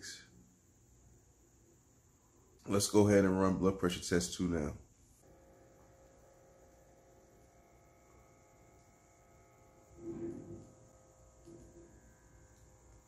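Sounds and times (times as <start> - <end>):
small pump humming: 5.2 - 13.0.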